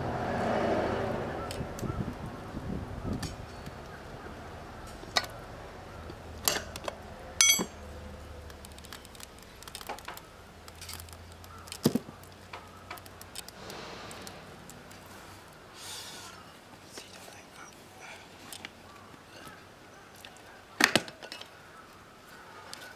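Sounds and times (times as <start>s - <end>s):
sharp metallic knocks: 7.4s - 7.8s.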